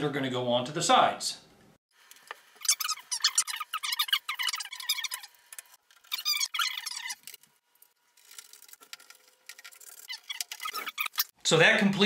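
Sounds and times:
wood squeaking: 0:02.6 - 0:05.3, 0:06.0 - 0:07.4, 0:09.6 - 0:11.3.

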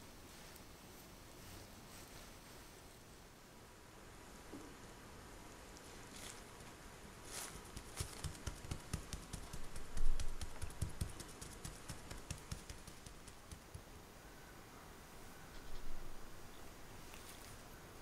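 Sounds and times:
fingertips tapping pastry on mat: 0:07.7 - 0:13.9.

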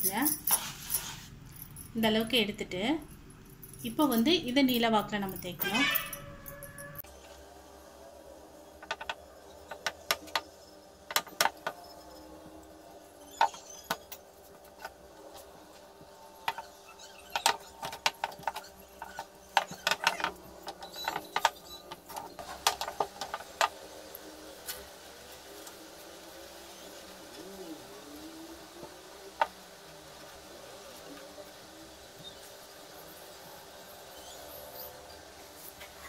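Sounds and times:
bangles clinking: 0:00.0 - 0:07.1
faint steady hum: 0:00.0 - 0:36.0.

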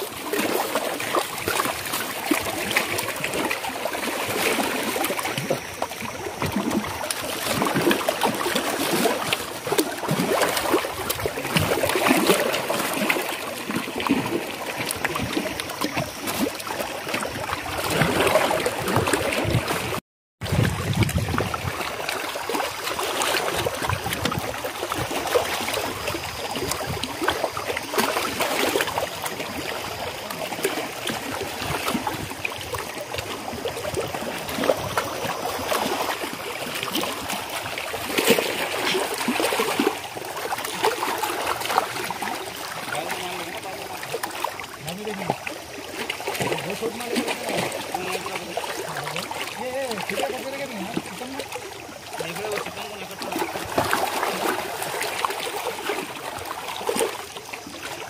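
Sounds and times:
water lapping against rocks: 0:00.0 - 0:58.0.

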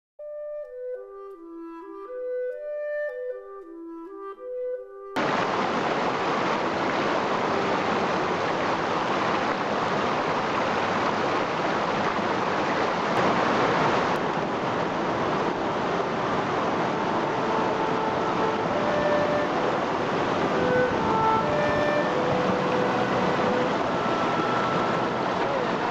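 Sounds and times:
river rushing over rocks: 0:05.2 - 0:25.9.

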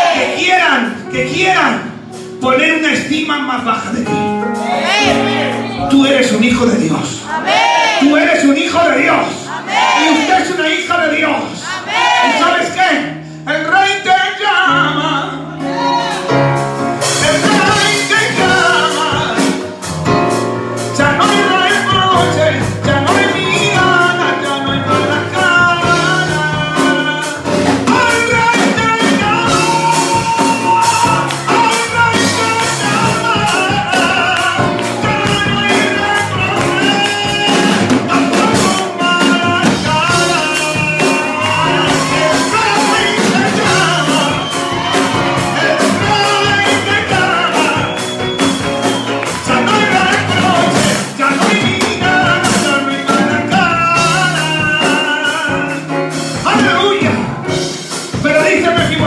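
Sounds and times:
amplified band playing: 0:00.0 - 0:59.0
man singing into a microphone: 0:08.0 - 0:15.5, 0:17.1 - 0:19.7, 0:20.9 - 0:44.6, 0:45.4 - 0:48.4, 0:49.3 - 0:57.4, 0:58.1 - 0:59.0.

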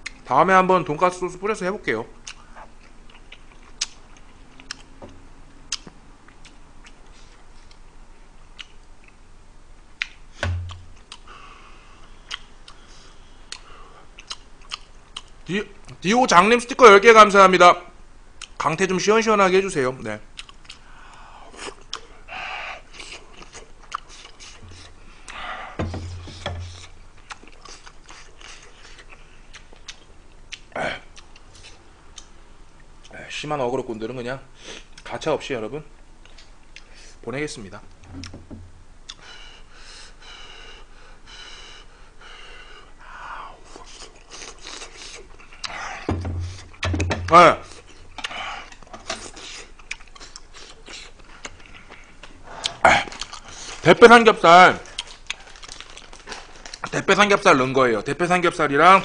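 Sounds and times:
person chewing: 0:02.2 - 0:04.9, 0:05.7 - 0:07.8, 0:08.6 - 0:09.2, 0:10.0 - 0:11.3, 0:12.1 - 0:15.4, 0:20.4 - 0:22.2, 0:22.8 - 0:32.3, 0:39.0 - 0:39.3, 0:43.6 - 0:46.8, 0:47.6 - 0:53.8, 0:54.8 - 0:56.9.

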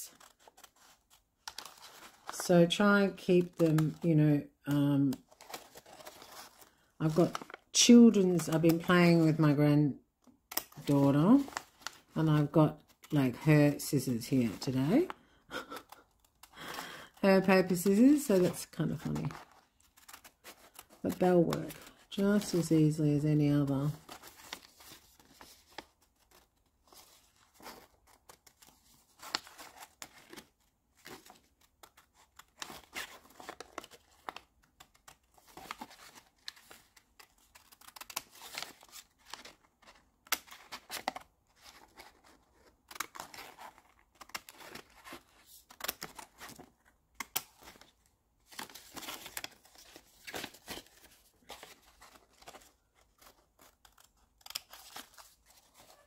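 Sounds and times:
paper crinkling: 0:00.0 - 0:02.4, 0:05.0 - 0:09.5, 0:10.5 - 0:23.0, 0:23.6 - 0:56.0
scissors snipping paper: 0:27.5 - 0:47.9, 0:48.5 - 0:56.0.

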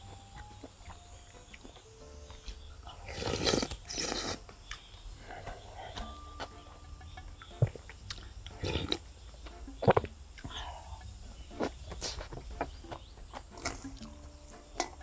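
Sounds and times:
person slurping and chewing: 0:02.9 - 0:04.5, 0:07.6 - 0:09.2, 0:09.8 - 0:12.3, 0:13.4 - 0:14.2.

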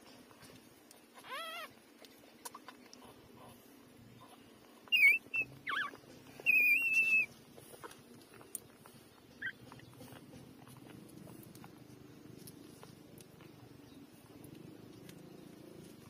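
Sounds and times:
puppies squeaking and whining: 0:01.1 - 0:01.8, 0:02.4 - 0:11.9.

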